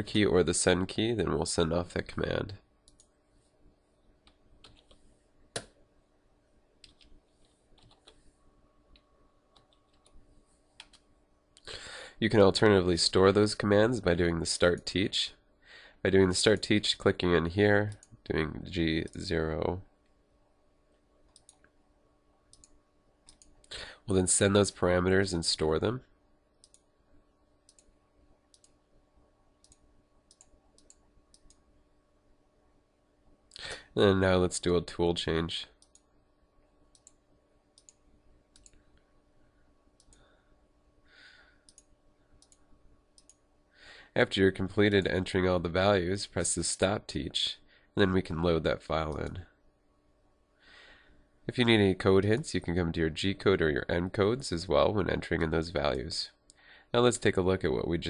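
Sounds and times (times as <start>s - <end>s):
computer mouse clicks: 2.8s - 3.2s, 4.2s - 5.8s, 6.8s - 8.2s, 8.9s - 10.2s, 10.8s - 11.1s, 21.3s - 21.8s, 22.5s - 23.8s, 26.5s - 26.9s, 27.6s - 27.9s, 28.5s - 28.8s, 29.6s - 31.6s, 35.8s - 36.1s, 36.9s - 37.2s, 37.8s - 39.0s, 41.6s - 43.4s
keyboard typing clicks: 4.2s - 5.8s, 6.8s - 7.1s, 7.8s - 8.2s, 29.6s - 31.6s.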